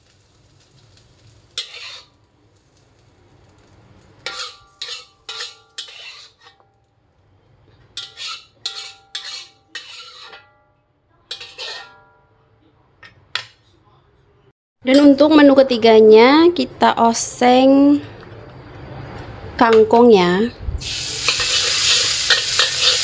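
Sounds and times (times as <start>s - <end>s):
metal spatula scraping wok: 1.4s - 2.2s, 4.2s - 6.7s, 7.7s - 10.6s, 11.3s - 12.2s, 20.9s - 23.0s.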